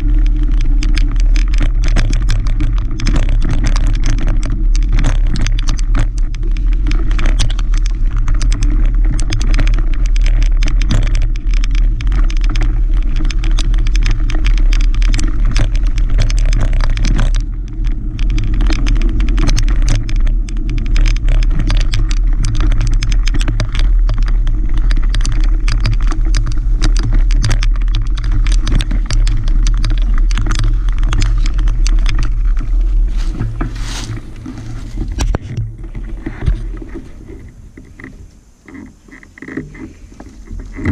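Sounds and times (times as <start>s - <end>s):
bike clattering and rattling: 0.0s - 40.9s
bike tyres on dirt trail: 0.0s - 40.9s
wind on microphone: 0.0s - 40.9s.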